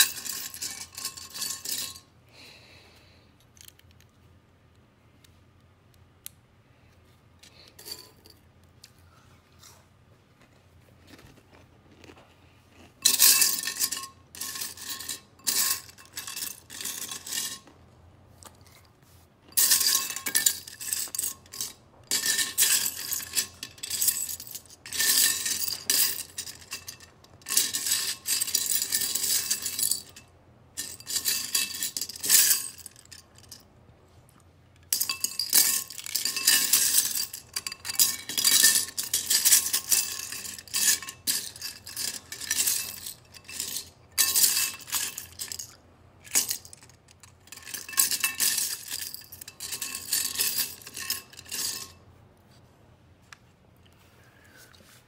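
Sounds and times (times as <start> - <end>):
plastic bricks clattering in a bowl: 34.9 - 51.9.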